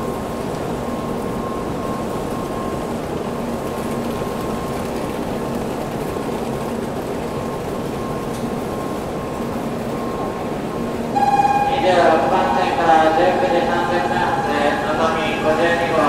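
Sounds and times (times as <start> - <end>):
train humming: 0.0 - 16.0
faint steady tone: 11.2 - 16.0.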